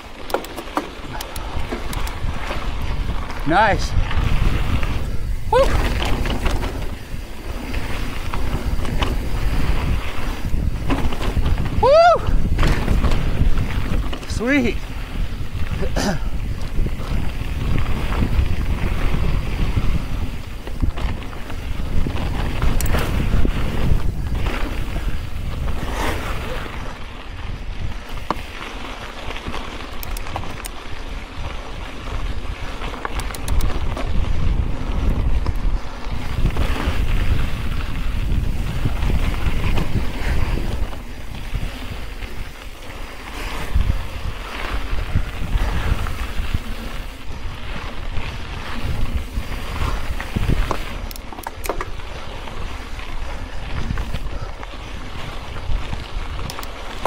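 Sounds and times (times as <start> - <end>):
bike rattles and clicks: 0.0 - 57.0
tyres crunching on dirt: 0.0 - 57.0
wind buffeting microphone: 0.0 - 57.0.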